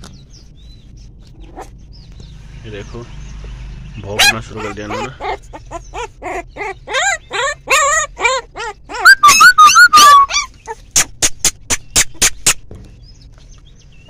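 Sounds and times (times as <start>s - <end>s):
puppies yelping and squealing: 1.1s - 2.0s, 4.0s - 12.6s.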